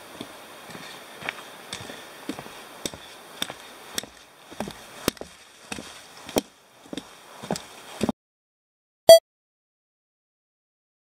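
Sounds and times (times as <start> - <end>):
trekking poles clicking on trail: 0.1 - 8.1
footsteps: 0.2 - 8.1.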